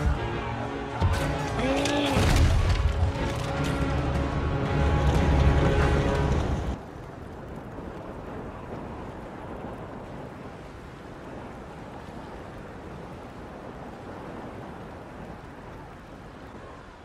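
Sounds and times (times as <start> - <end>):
wind over open water: 5.2 - 17.0.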